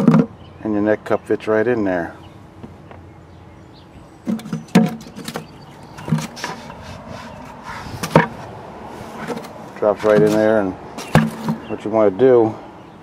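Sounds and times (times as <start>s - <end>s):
plastic knocks and taps: 0.0s - 0.3s, 4.3s - 6.7s, 8.0s - 8.4s, 11.0s - 11.6s.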